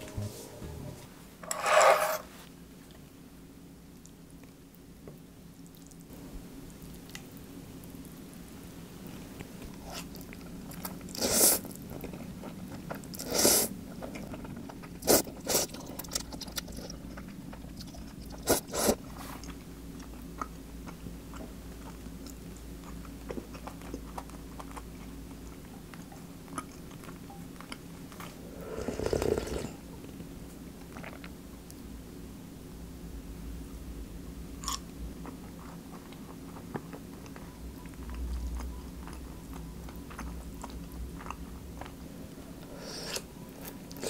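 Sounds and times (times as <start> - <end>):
slurping noodles: 13.1 - 13.7, 28.4 - 29.8
chewing with sharp clicks: 19.4 - 28.4, 34.6 - 42.0.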